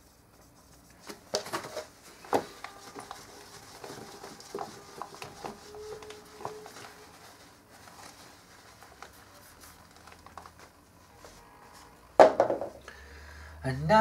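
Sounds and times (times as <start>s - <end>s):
eraser rubbing on whiteboard: 2.3s - 9.8s.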